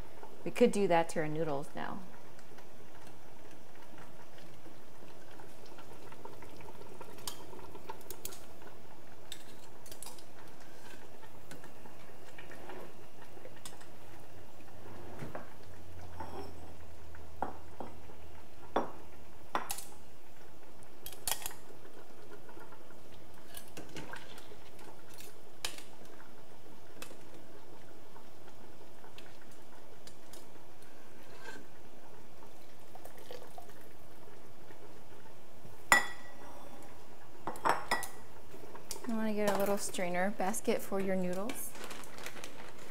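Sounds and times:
ceramic bowl clinking on pot: 35.9s - 36.5s.

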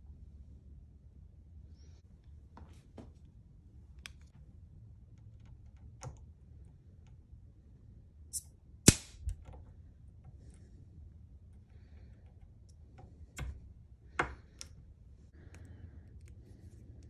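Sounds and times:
sharp loud click: 8.9s - 9.3s.

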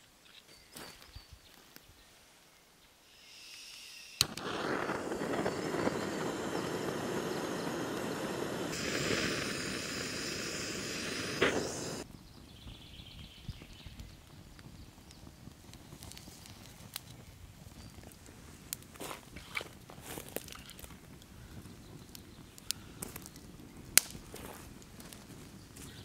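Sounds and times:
campfire crackling: 4.2s - 12.1s, 14.0s - 26.0s
campfire snap: 4.2s - 12.1s, 14.5s - 25.9s.

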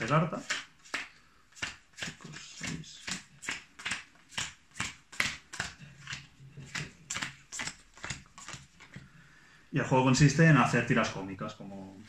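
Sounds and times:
playing cards snapping: 0.4s - 9.0s.

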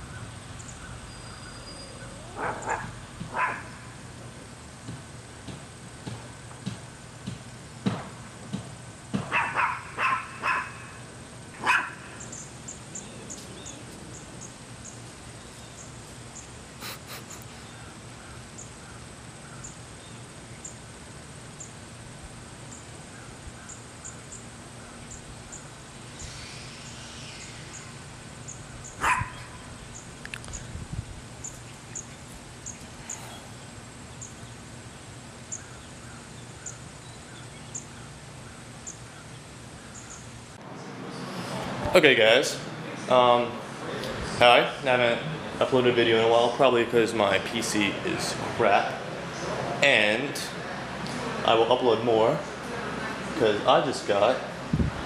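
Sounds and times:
small dog barking: 2.1s - 3.8s, 9.3s - 10.9s, 11.6s - 12.1s, 29.0s - 29.6s.

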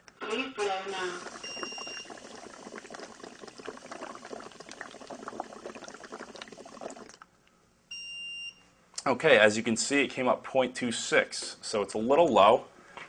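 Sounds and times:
breath bubbling through liquid: 1.0s - 7.3s.

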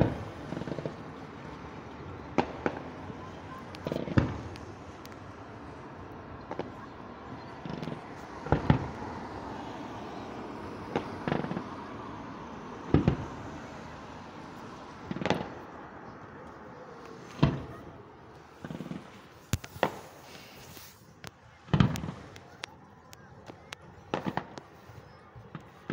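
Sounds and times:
firework shells bursting: 18.6s - 22.7s.

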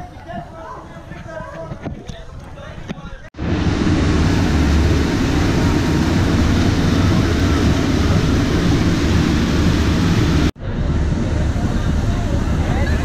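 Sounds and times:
wind on microphone: 0.0s - 13.0s
boat engines rumbling: 3.4s - 13.0s
rushing wake water: 3.4s - 13.0s.

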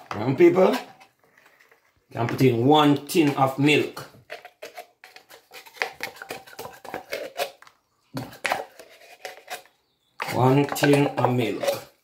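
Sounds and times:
tin can clicking and tapping: 3.2s - 12.0s.

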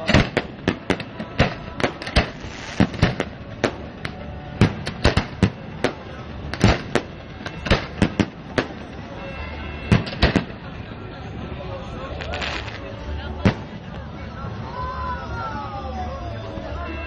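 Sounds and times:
fireworks bursting with sharp bangs: 0.0s - 11.4s, 12.1s - 14.1s.

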